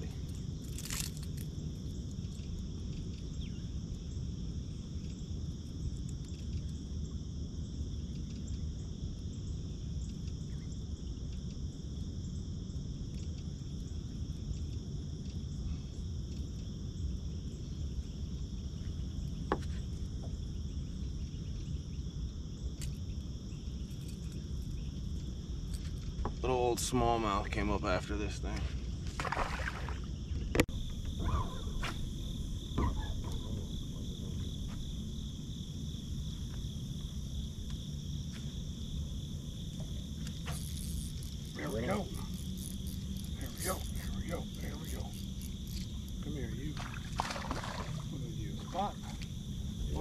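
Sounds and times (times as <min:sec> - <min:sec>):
insects chorus drone: 0:00.0 - 0:50.0
low background rumble: 0:30.0 - 0:50.0.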